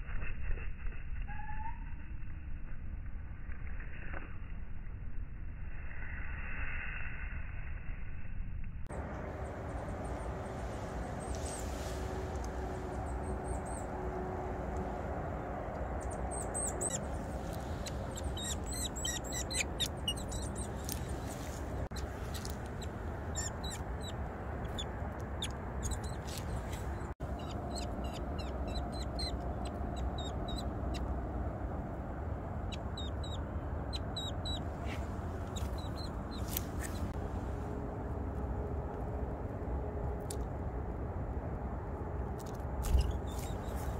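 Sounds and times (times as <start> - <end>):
steady low rumble: 0.0 - 43.9
songbirds chirping: 15.6 - 31.2.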